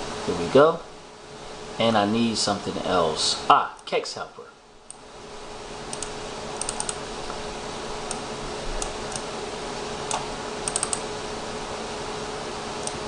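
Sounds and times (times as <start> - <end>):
steady hum: 0.0 - 13.0
mouse and keyboard clicks: 5.9 - 7.0.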